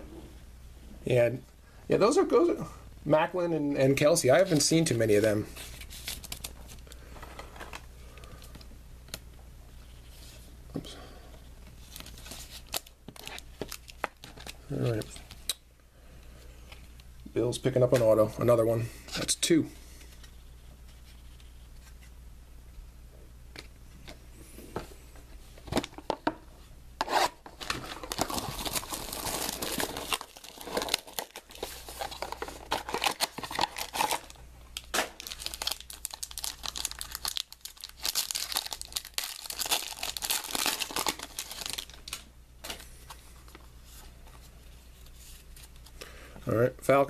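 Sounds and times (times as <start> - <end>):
packaging tearing and crinkling: 11.8 - 15.1, 27.1 - 42.3.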